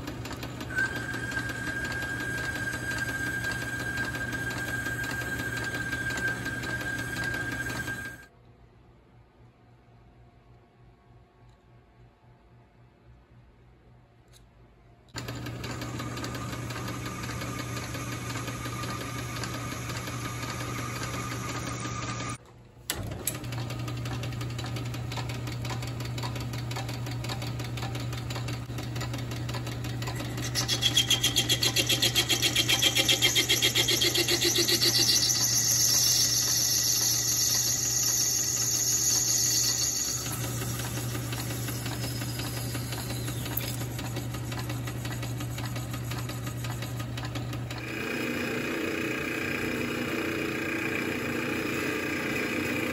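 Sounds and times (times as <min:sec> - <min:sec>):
lathe motor hum: 0:00.0 - 0:08.3, 0:15.2 - 0:52.9
cutting tool scraping metal: 0:30.0 - 0:47.0.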